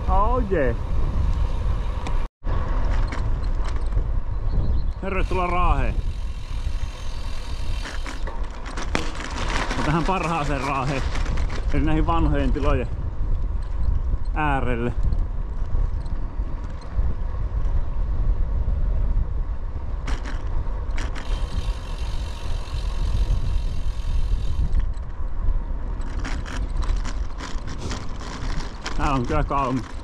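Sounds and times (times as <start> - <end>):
bicycle road noise: 0.0 - 30.0
wind on microphone: 0.0 - 30.0
clicks and rattles: 7.8 - 12.7, 26.0 - 30.0.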